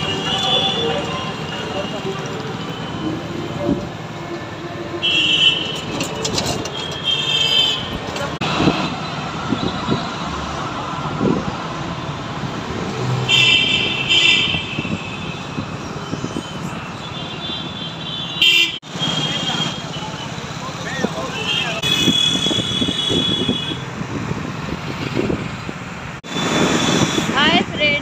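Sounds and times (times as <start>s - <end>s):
vehicle horns honking: 0.0s - 3.4s, 5.0s - 8.3s, 13.3s - 15.7s, 16.4s - 20.4s, 21.3s - 23.9s
rumble of engines and tyres: 0.0s - 28.0s.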